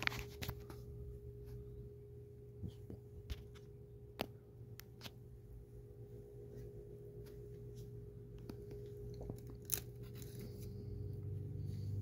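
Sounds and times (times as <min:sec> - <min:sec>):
low room hum: 0:00.0 - 0:12.0
faint clicks and handling noises: 0:02.6 - 0:05.3, 0:06.5 - 0:11.4.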